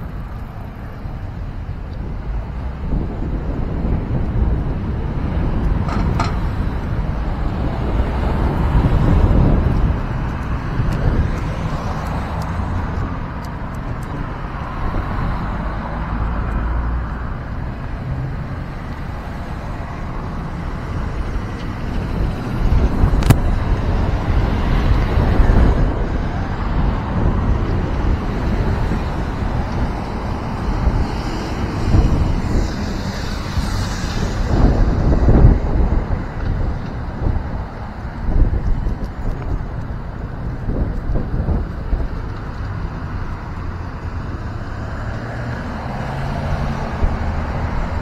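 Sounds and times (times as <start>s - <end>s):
passing road traffic: 0.0s - 48.0s
wind buffeting microphone: 0.0s - 48.0s.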